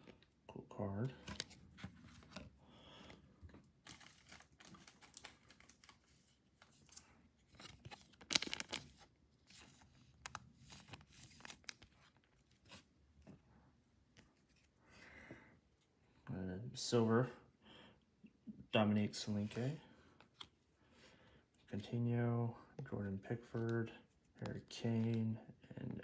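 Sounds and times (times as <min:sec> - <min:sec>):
plastic card sleeve crinkling: 0:01.2 - 0:02.6, 0:03.7 - 0:12.9.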